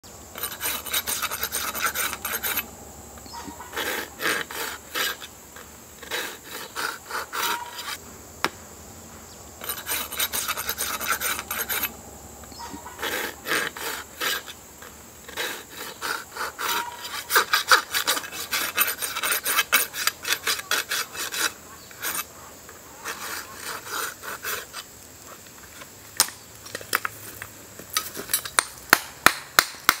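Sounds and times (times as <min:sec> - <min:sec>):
rasp filing hoof: 0:00.4 - 0:08.0, 0:09.6 - 0:12.0, 0:12.6 - 0:22.3, 0:23.0 - 0:24.9.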